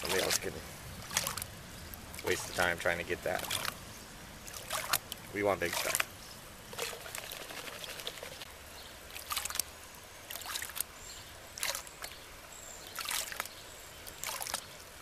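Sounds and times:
gravel washing over riffles: 0:00.0 - 0:03.8, 0:04.5 - 0:06.1
water sloshing off a plastic pan: 0:01.0 - 0:01.4, 0:03.3 - 0:03.8, 0:04.4 - 0:06.1.

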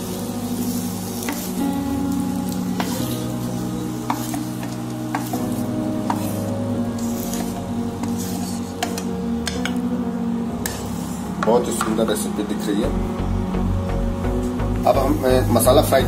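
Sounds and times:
hot oil sizzling: 0:00.0 - 0:16.0
spatula scraping and knocking pan: 0:01.2 - 0:01.6, 0:02.4 - 0:03.4, 0:04.0 - 0:09.8, 0:10.6 - 0:12.0.

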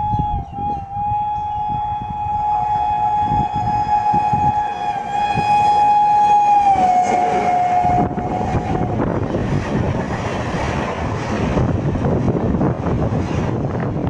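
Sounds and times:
train horn long blast: 0:00.0 - 0:09.4
train rumbling on track: 0:00.0 - 0:14.0.

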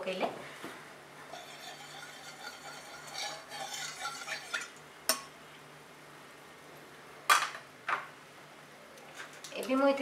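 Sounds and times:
spatula stirring in pan: 0:01.2 - 0:05.2
oil sizzling and crackling: 0:01.2 - 0:05.4.

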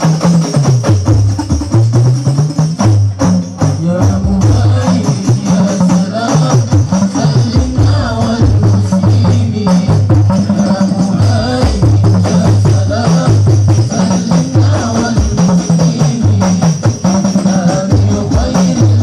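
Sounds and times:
frame drums beating rhythm: 0:00.0 - 0:19.0
chanted devotional singing: 0:03.9 - 0:19.0.

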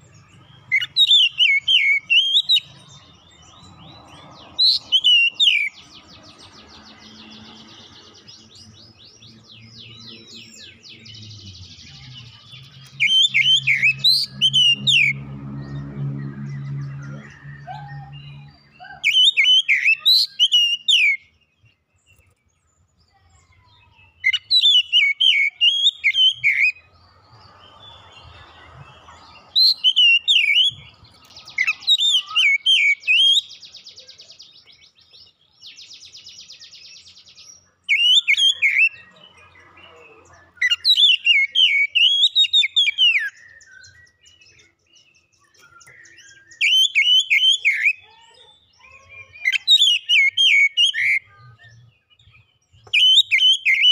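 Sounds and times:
bird singing whistled phrases: 0:00.7 - 0:02.7, 0:04.6 - 0:05.8, 0:11.8 - 0:15.2, 0:16.6 - 0:21.4, 0:23.6 - 0:26.9, 0:29.6 - 0:34.3, 0:37.9 - 0:39.2, 0:40.6 - 0:48.1, 0:48.8 - 0:53.9.

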